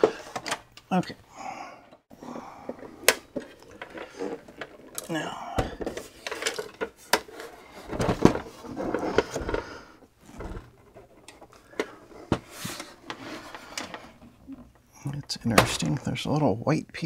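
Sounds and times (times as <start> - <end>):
hollow plastic knocks and scrapes: 2.7 - 16.0.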